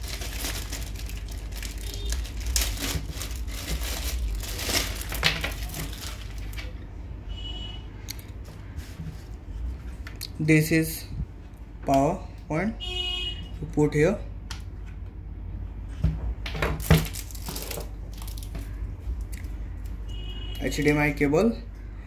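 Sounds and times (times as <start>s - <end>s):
plastic bag crinkling: 0.0s - 6.8s, 16.8s - 18.7s.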